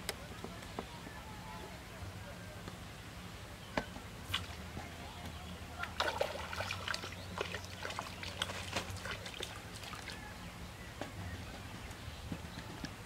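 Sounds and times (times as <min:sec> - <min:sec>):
fish splashing in water: 0:04.2 - 0:04.7, 0:05.7 - 0:10.3.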